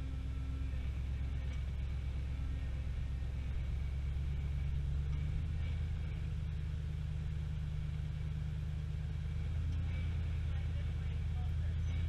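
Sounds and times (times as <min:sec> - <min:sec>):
truck engine low rumble: 0:00.0 - 0:12.0.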